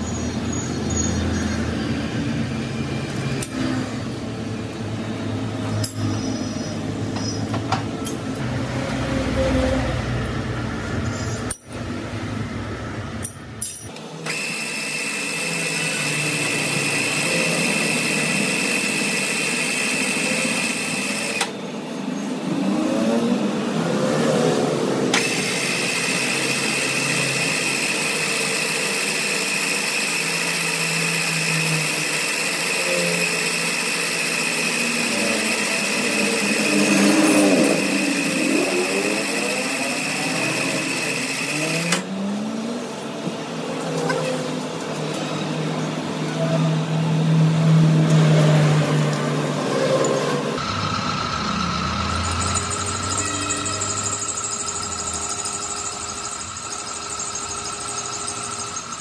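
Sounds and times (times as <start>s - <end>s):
power tool whining: 13.9s - 21.6s, 25.0s - 42.4s, 49.7s - 59.0s.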